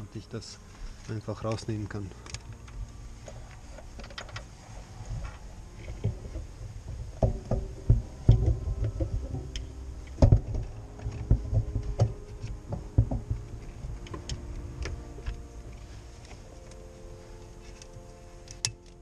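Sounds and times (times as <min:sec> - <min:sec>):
wiring harness knocks and clicks: 0:05.2 - 0:15.4.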